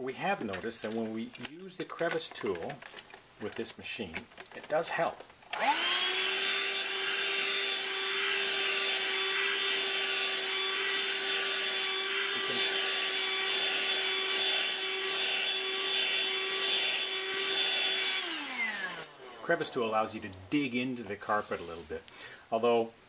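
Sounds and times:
hand vacuum running: 0:05.5 - 0:20.1
vacuum suction hiss on carpet: 0:05.6 - 0:20.2.

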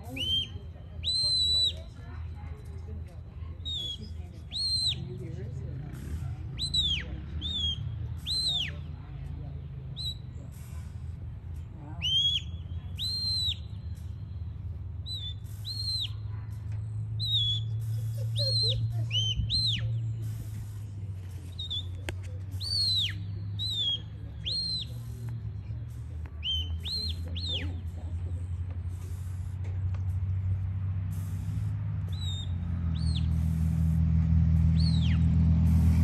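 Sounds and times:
high whistle commands: 0:00.0 - 0:02.0, 0:03.6 - 0:05.1, 0:06.5 - 0:08.9, 0:10.0 - 0:10.7, 0:12.0 - 0:16.3, 0:17.1 - 0:20.8, 0:21.5 - 0:25.6, 0:26.4 - 0:27.8, 0:31.3 - 0:33.6, 0:34.8 - 0:35.3.

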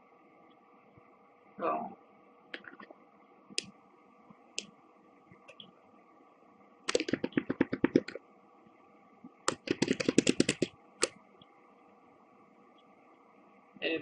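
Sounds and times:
computer keyboard keys clicking: 0:06.9 - 0:08.2, 0:09.5 - 0:11.2.

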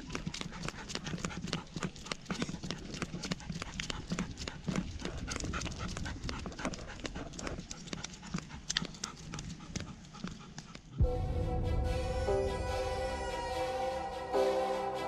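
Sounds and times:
dog claws clicking: 0:00.0 - 0:11.0
footsteps on tiled pavement: 0:00.0 - 0:11.0
dog panting heavily: 0:00.0 - 0:11.1.

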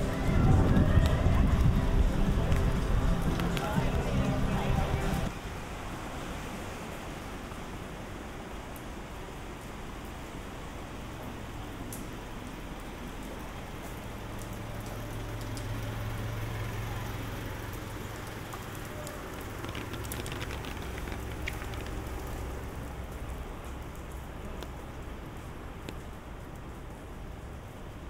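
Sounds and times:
low hum: 0:00.0 - 0:05.3
steady rain on streets: 0:00.0 - 0:28.0
sharp drips: 0:09.5 - 0:28.0.

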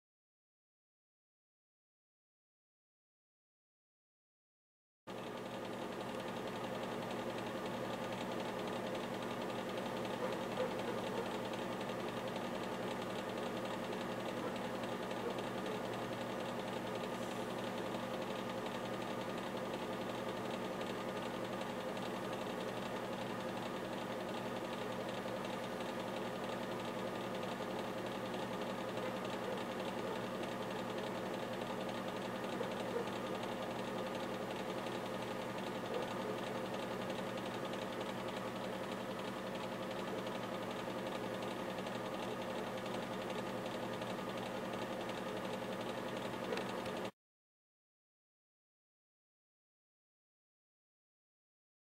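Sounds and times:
machine motor humming: 0:05.1 - 0:47.1.

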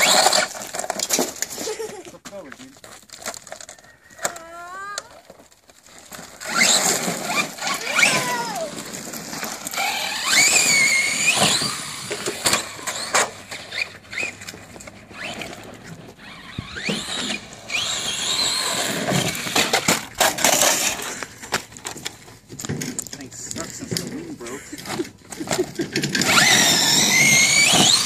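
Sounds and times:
tyres clattering on gravel: 0:00.0 - 0:28.0
electric motor whining: 0:06.4 - 0:21.0, 0:26.0 - 0:28.0.

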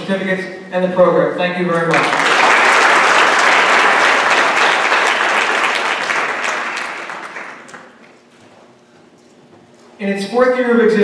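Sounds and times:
audience applauding: 0:01.9 - 0:08.1.

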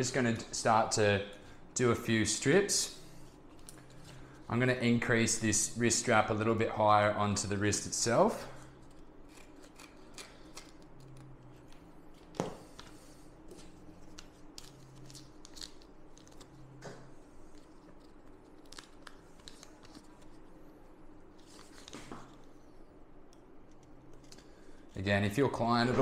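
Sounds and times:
scissors snipping tape: 0:09.3 - 0:11.3.

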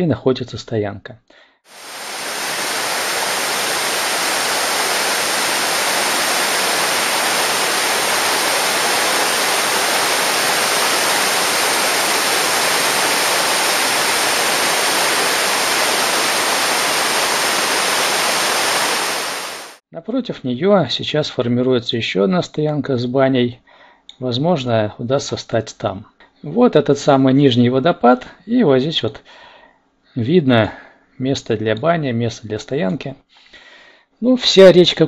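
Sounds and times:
waterfall rushing over rocks: 0:01.7 - 0:19.8.

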